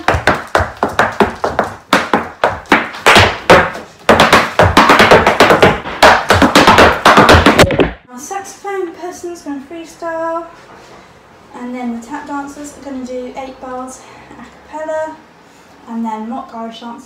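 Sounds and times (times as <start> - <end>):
hard shoes tapping on floor: 0.0 - 8.0.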